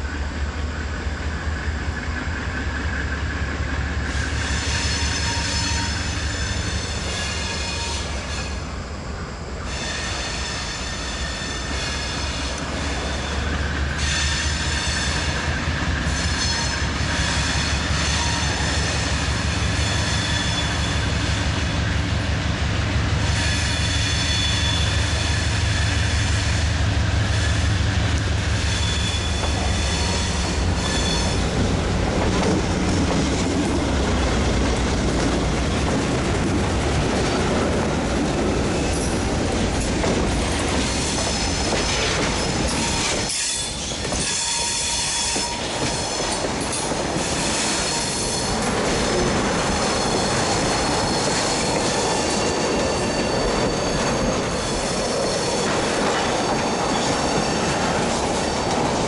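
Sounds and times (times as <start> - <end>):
diesel locomotive engine droning: 0.0 - 59.0
wheel flange squeal: 9.7 - 15.4, 16.1 - 21.5, 23.2 - 26.6, 28.5 - 31.7, 49.6 - 59.0.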